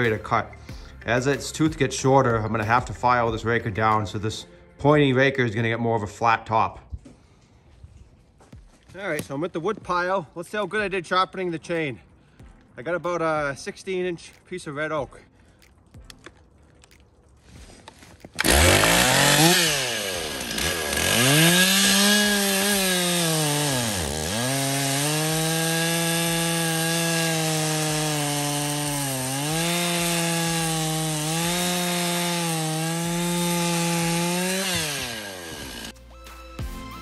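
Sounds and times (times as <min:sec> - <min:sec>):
chainsaw revving and cutting: 0:18.0 - 0:35.9.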